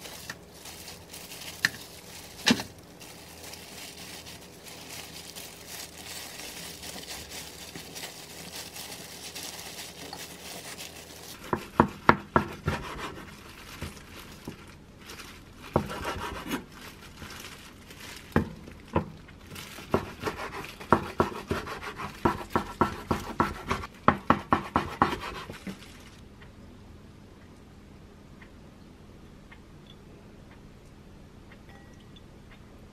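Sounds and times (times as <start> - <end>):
plastic gloves crinkling: 0.0 - 26.2.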